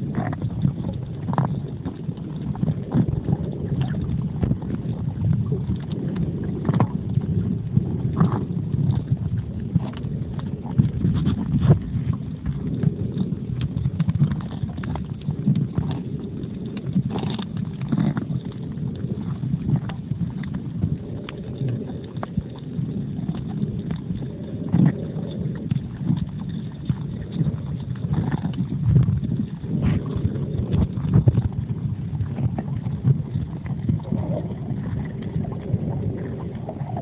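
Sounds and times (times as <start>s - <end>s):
muffled underwater water rumble: 0.0s - 37.0s
small underwater clicks and crackles: 0.0s - 37.0s.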